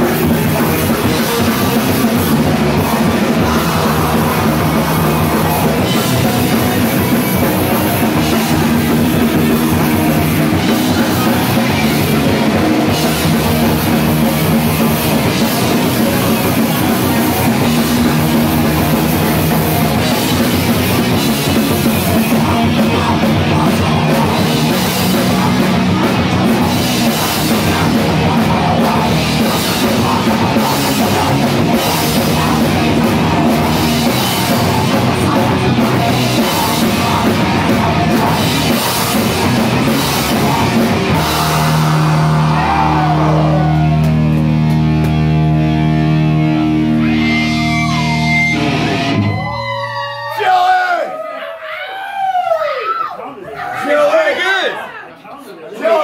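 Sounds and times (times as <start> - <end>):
heavy rock band playing: 0.0 - 50.6.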